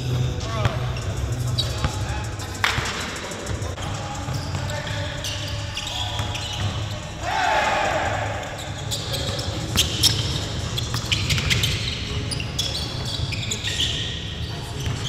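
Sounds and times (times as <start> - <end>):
sneaker squeak: 0.0 - 2.2, 3.6 - 7.2, 8.2 - 15.0
basketballs bouncing on gym floor: 14.5 - 15.0.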